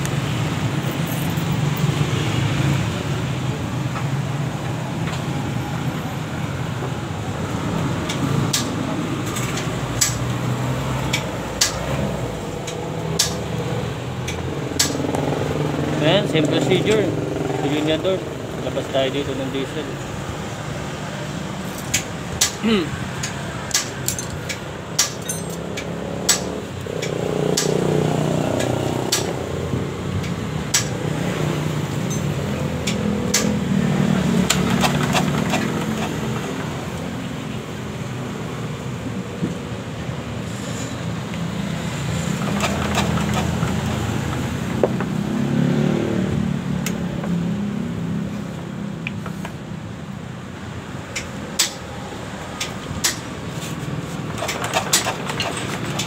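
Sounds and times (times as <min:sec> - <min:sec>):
metal tools clicking and clinking: 0:00.8 - 0:01.7, 0:21.6 - 0:22.6, 0:23.2 - 0:27.8, 0:32.0 - 0:33.6, 0:34.5 - 0:36.7, 0:42.2 - 0:43.8, 0:54.2 - 0:56.0.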